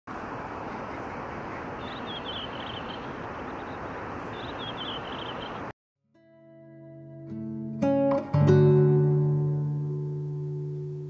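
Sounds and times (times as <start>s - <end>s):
outdoor rushing noise: 0.1s - 5.7s
bird twittering: 0.6s - 5.7s.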